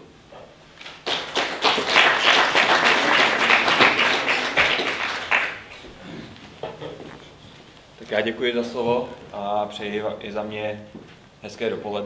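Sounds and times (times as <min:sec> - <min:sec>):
audience applauding: 0:00.8 - 0:05.9.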